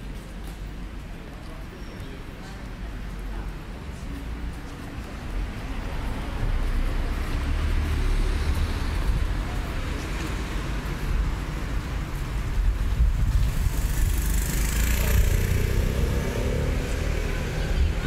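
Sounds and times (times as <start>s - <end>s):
low rumble of street traffic: 0.0s - 18.0s
car passing slowly: 13.4s - 18.0s.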